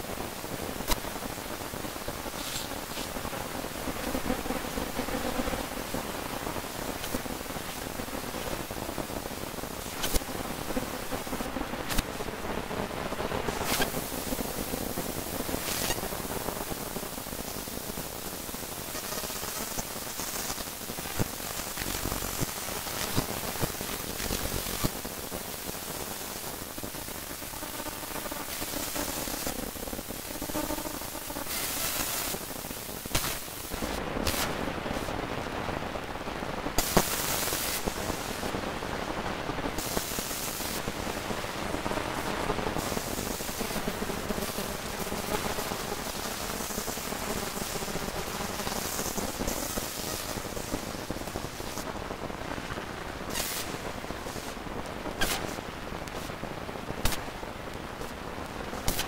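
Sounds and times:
crackle and static hiss: 0.0s - 59.0s
sharp pops: 0.8s - 1.2s, 9.8s - 10.3s, 11.8s - 12.2s, 13.5s - 14.4s, 33.0s - 35.1s, 53.3s - 56.4s, 57.0s - 57.4s, 58.8s - 59.0s.

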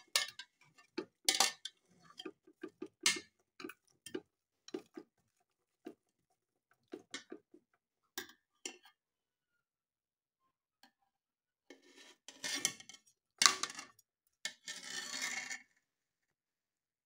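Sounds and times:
metal spoon scraping metal pot: 0.0s - 5.1s, 11.8s - 12.9s.

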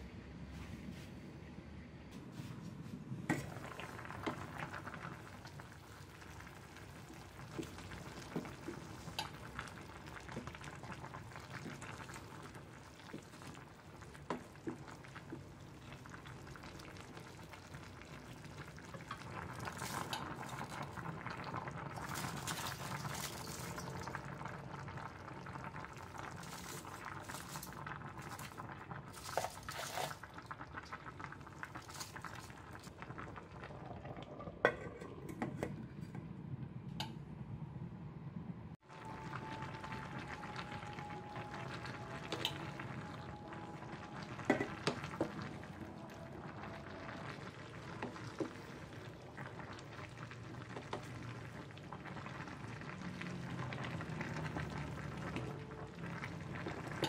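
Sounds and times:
soup simmering in pot: 3.3s - 37.7s, 38.7s - 57.0s
wooden spoon stirring: 26.3s - 30.3s.

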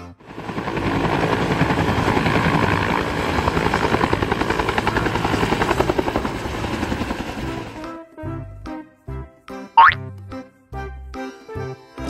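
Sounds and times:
helicopter engine rush: 0.2s - 7.8s
helicopter rotor beating: 0.2s - 7.8s.

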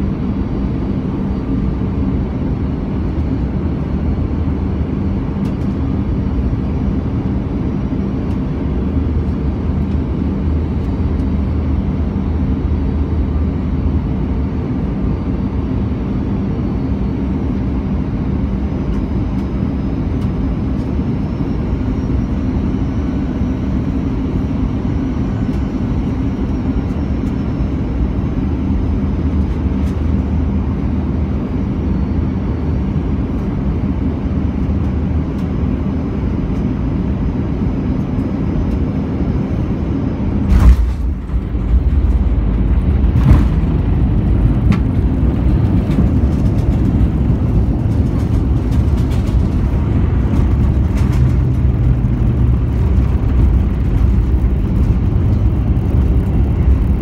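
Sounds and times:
airplane cabin engine hum: 0.0s - 57.0s
airplane touchdown bang: 40.4s - 55.1s
runway rumble with thumps: 40.4s - 57.0s.

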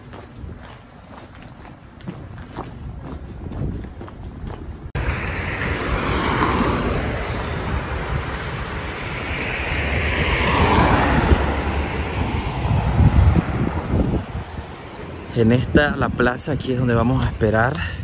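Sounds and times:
wind rumbling on microphone: 0.0s - 18.0s
rushing noise: 4.9s - 15.2s.

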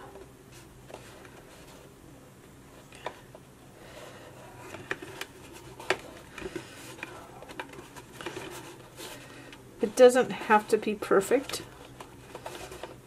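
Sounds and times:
paper rustling and scraping: 4.5s - 13.0s.

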